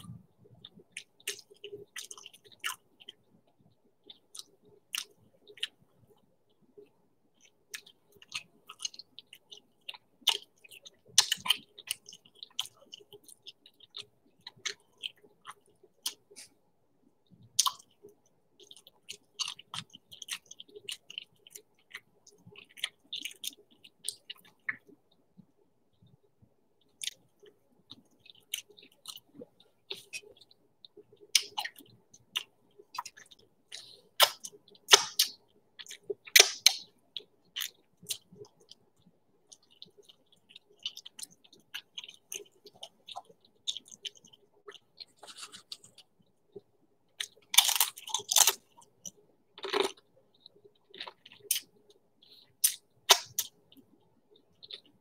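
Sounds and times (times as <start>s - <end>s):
close chewing and eating: 0.0s - 55.0s
lip smacks: 27.9s - 36.9s, 47.2s - 54.0s
crunching: 39.5s - 46.1s.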